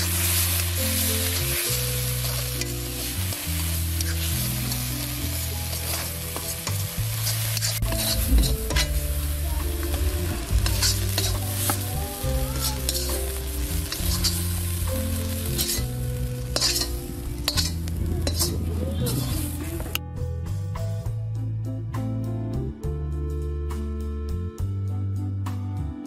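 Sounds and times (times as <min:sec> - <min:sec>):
metal spatula scraping iron pan: 0:00.0 - 0:05.0, 0:05.6 - 0:09.0, 0:10.5 - 0:19.5
paste sizzling in a pan: 0:00.0 - 0:19.5.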